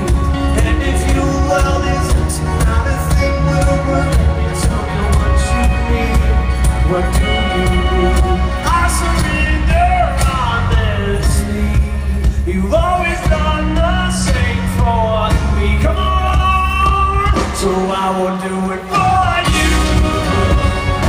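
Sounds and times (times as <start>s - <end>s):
heavy bass: 0.0s - 18.0s, 19.0s - 21.0s
live pop-rock band playing: 0.0s - 21.0s
person singing: 0.0s - 21.0s.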